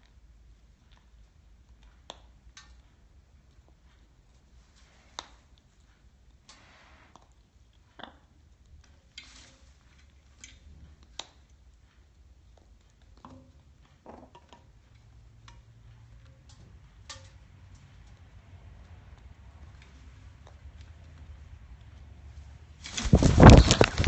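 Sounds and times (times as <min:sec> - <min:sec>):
low room hum: 0:00.0 - 0:24.0
parrot scraping rustles: 0:22.8 - 0:24.0.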